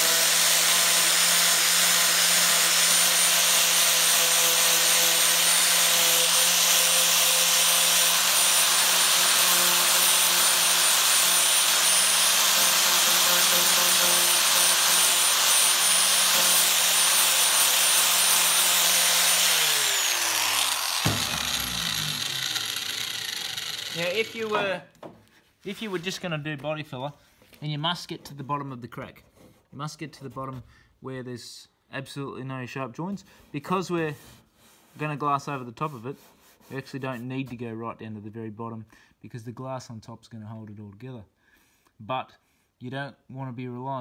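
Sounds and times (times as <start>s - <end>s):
angle grinder sanding: 0.0s - 24.8s
knock of grinder stopping: 20.9s - 24.0s.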